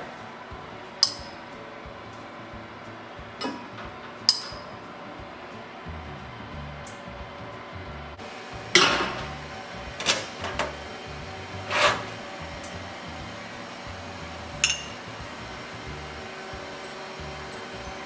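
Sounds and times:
soft background music: 0.0s - 18.0s
ceramic bowls clattering: 14.6s - 15.0s
ringing clink: 14.6s - 15.0s.

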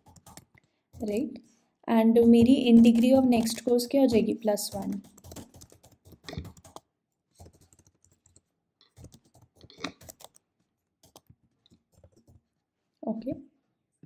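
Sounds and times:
typing on computer keyboard: 0.0s - 1.2s, 2.2s - 10.4s, 11.0s - 12.4s.

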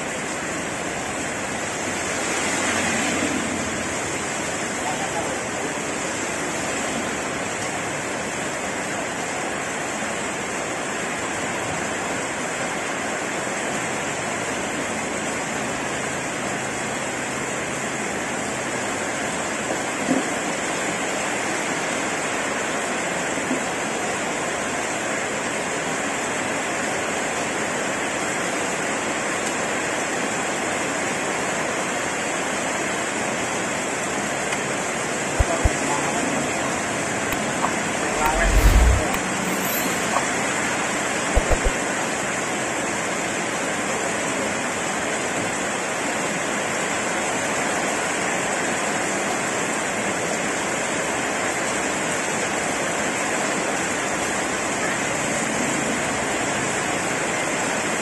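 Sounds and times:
heavy rain on a paved road: 0.0s - 35.2s, 42.7s - 58.0s
sharp taps: 41.4s - 41.7s.

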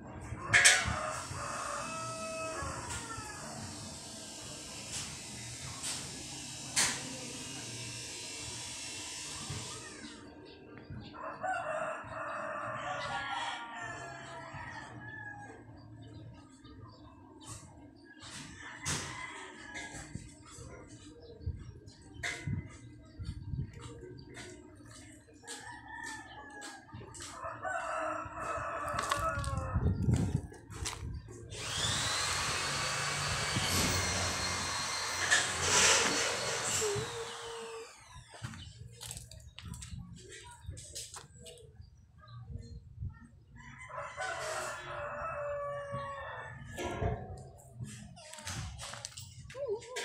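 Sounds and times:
rooster crowing: 0.7s - 3.8s, 11.2s - 15.6s, 25.6s - 30.0s, 43.6s - 46.8s
machine whining and hissing: 3.3s - 10.0s, 31.5s - 38.5s.

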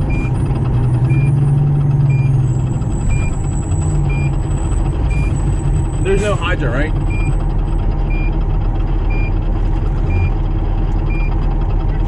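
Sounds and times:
diesel truck engine drone: 0.0s - 12.0s.

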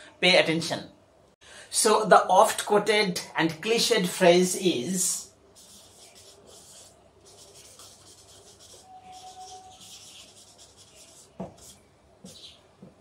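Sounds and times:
marker pen scratching on paper: 5.6s - 12.9s.

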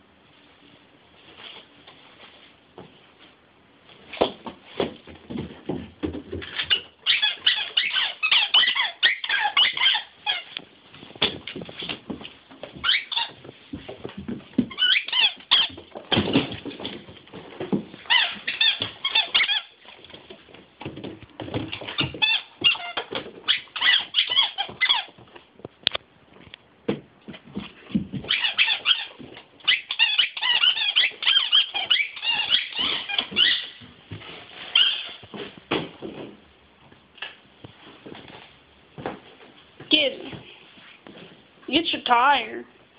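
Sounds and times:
knocks and scuffles: 1.2s - 6.9s, 10.5s - 23.5s, 24.3s - 29.7s, 30.4s - 41.6s
squeaky toy squeaking: 6.6s - 10.6s, 12.8s - 13.4s, 14.7s - 15.8s, 18.1s - 19.8s, 21.9s - 25.1s, 28.3s - 29.1s, 29.7s - 33.8s, 34.7s - 35.2s.

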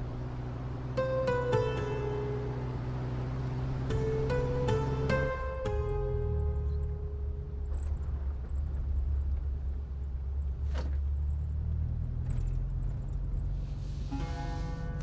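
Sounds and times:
car engine and road rumble: 0.0s - 15.0s
music: 0.9s - 8.3s, 14.0s - 15.0s.

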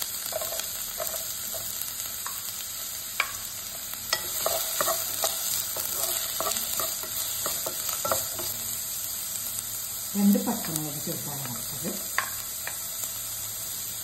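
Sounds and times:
onions sizzling in oil: 0.0s - 14.0s
spatula clicking and scraping pan: 0.2s - 8.8s, 10.5s - 13.0s.

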